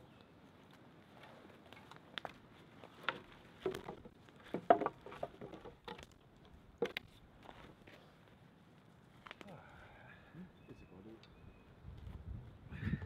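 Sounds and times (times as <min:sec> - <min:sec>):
logs set down knocking: 0:03.0 - 0:06.1.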